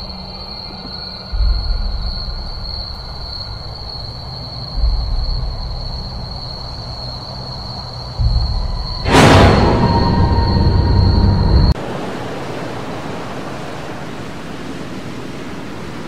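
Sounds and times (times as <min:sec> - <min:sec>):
deep rumbling drone: 0:01.3 - 0:11.8
high-pitched whine: 0:07.7 - 0:11.8.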